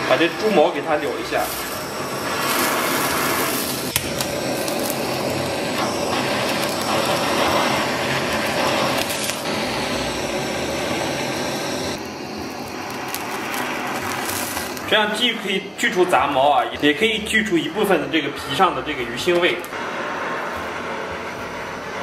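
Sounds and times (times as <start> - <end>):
gas blowtorch hissing: 0.0 - 22.0.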